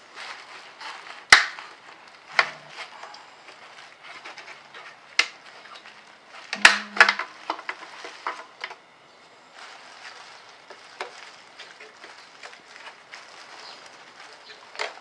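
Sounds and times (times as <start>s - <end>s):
rustling: 0.0s - 15.0s
sharp plastic snaps: 1.3s - 1.7s, 6.5s - 7.8s
plastic clicks: 6.5s - 8.8s.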